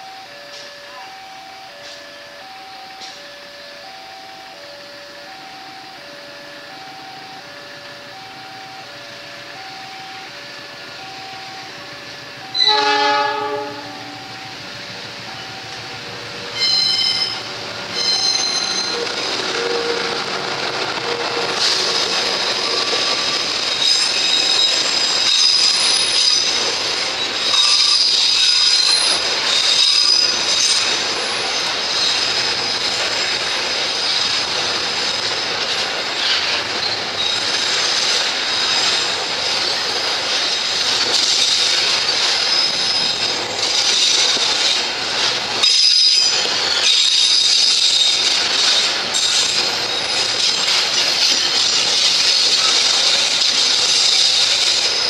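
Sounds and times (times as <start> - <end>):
train wheels rumbling on rails: 0.0 - 55.0
high-pitched wheel squeals: 12.4 - 14.6, 16.5 - 20.3, 21.0 - 44.4, 45.6 - 55.0.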